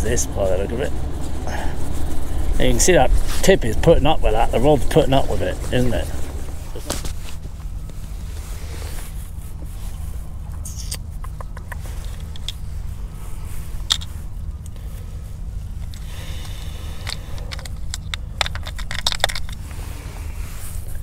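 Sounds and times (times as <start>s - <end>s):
steady low rumble: 0.0s - 21.0s
fishing tackle clicking and rattling: 15.8s - 19.6s.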